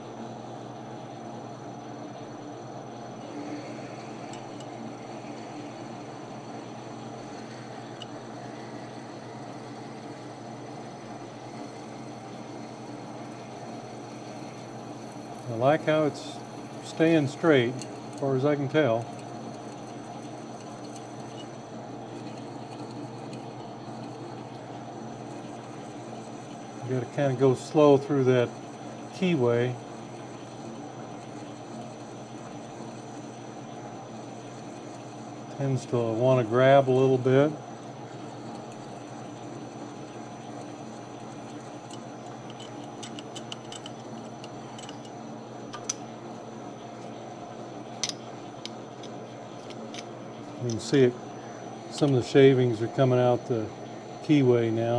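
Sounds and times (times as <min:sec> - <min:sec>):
metal lathe humming: 0:00.0 - 0:54.9
drill ticks and clicks: 0:16.9 - 0:23.6, 0:41.3 - 0:46.0, 0:48.0 - 0:51.0.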